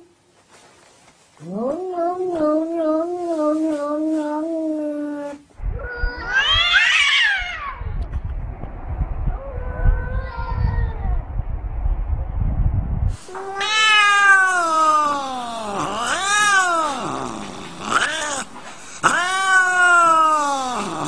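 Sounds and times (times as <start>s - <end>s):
low rumbling noise: 5.5s - 21.0s
cat yowling: 5.8s - 7.9s, 13.4s - 21.0s.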